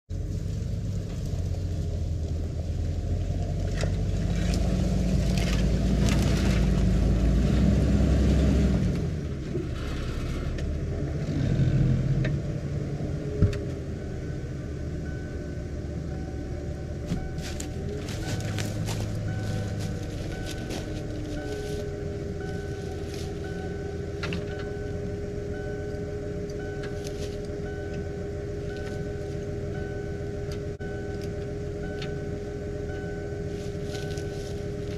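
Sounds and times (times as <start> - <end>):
truck engine running: 0.1 - 34.9
twigs and leaves crackling: 0.2 - 7.0, 17.0 - 24.6, 26.4 - 29.6, 33.5 - 34.9.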